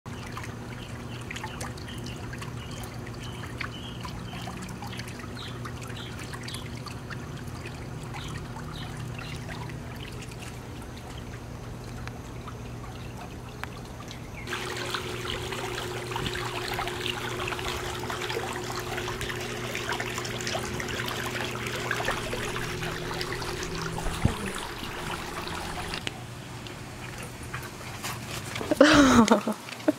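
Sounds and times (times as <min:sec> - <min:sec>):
steady low hum: 0:00.1 - 0:27.9
water trickling and lapping: 0:00.1 - 0:29.9
steady tone: 0:15.4 - 0:26.0.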